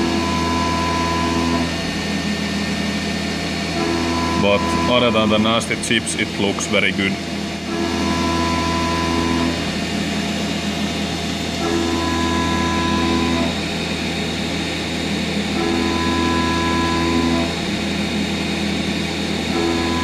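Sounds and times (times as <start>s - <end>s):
milling machine hum: 0.0s - 20.0s
metal cutting tone: 3.7s - 7.2s.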